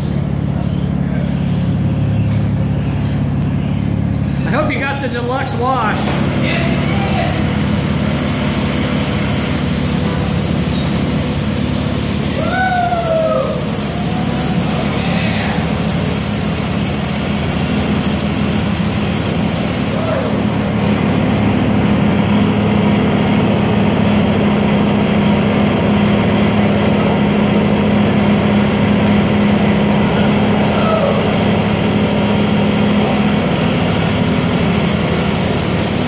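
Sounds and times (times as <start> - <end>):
machine hum: 0.0 - 36.0
water spray hissing: 4.8 - 23.2, 30.0 - 36.0.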